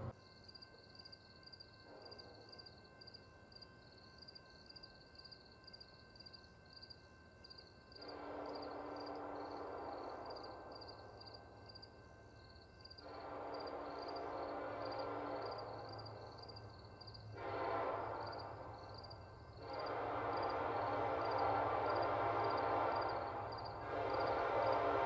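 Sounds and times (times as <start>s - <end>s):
crickets chirping: 0.1s - 25.0s
distant train horn: 8.0s - 11.7s, 13.0s - 25.0s.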